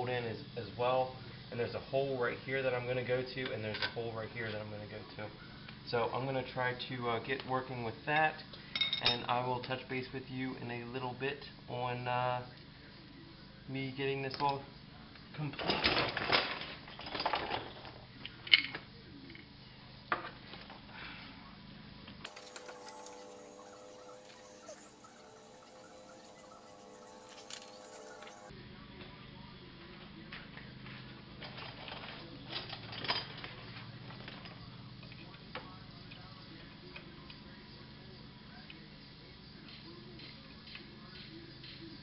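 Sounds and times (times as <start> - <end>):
steady low hum: 22.3 - 28.8.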